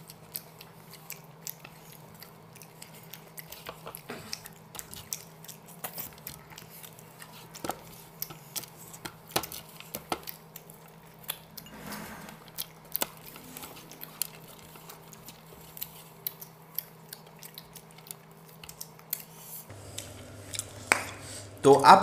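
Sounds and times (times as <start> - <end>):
steady low hum: 19.7 - 22.0
clicks and taps on plates: 20.0 - 21.5.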